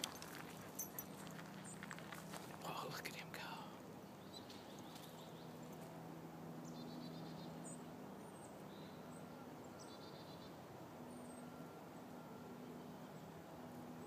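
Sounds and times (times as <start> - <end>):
low steady hum: 0.0 - 14.0
small birds chirping and trilling: 0.4 - 5.7.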